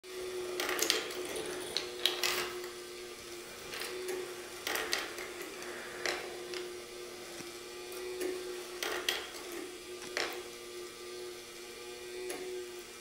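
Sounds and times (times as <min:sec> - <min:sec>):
faint steady hum: 0:00.2 - 0:11.4
steel balls clattering on rails: 0:00.5 - 0:02.7.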